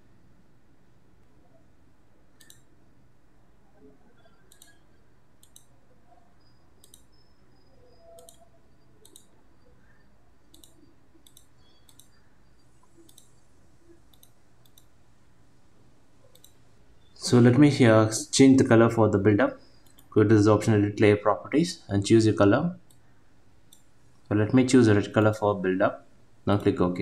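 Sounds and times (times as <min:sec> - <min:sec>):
computer mouse button clicking: 0:02.4 - 0:02.7, 0:04.5 - 0:04.8, 0:06.8 - 0:07.1, 0:08.1 - 0:08.4, 0:09.0 - 0:09.3, 0:10.5 - 0:12.2, 0:12.8 - 0:13.4.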